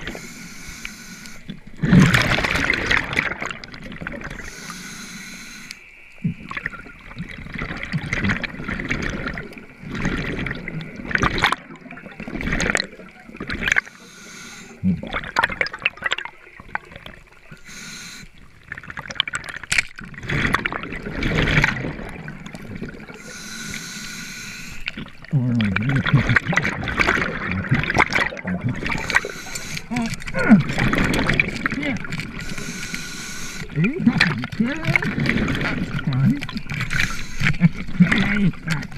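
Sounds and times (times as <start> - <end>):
underwater water swishing and gurgling: 0.0 - 38.9
clicks and crackles: 18.4 - 23.8, 24.7 - 38.9.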